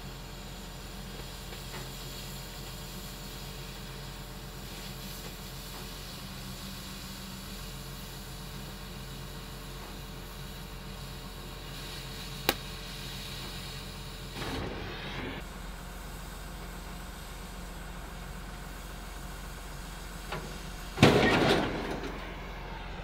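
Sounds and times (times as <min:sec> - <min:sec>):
cutting torch hissing: 0:00.2 - 0:17.9.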